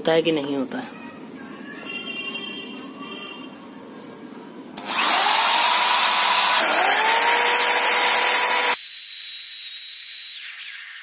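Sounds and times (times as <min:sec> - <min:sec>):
electric drill whirring into brick: 0:04.8 - 0:11.0.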